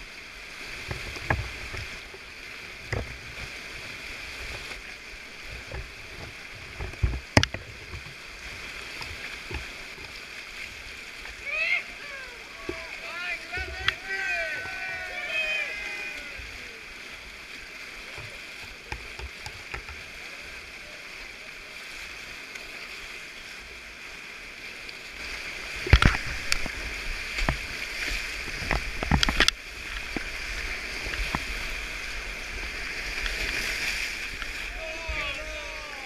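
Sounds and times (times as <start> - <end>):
whitewater rapid rushing: 0.0 - 36.0
loud knocks and splashes: 25.8 - 30.3.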